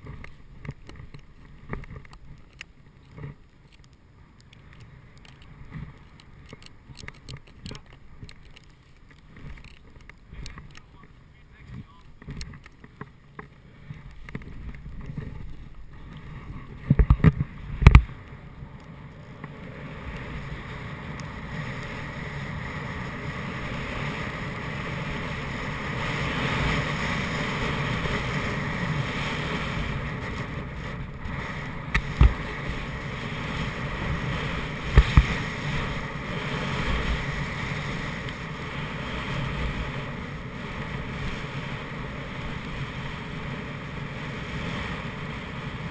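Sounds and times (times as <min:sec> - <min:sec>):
clicks: 0:00.1 - 0:15.3
wind on microphone: 0:13.6 - 0:45.9
snowboard hissing through snow: 0:19.6 - 0:45.9.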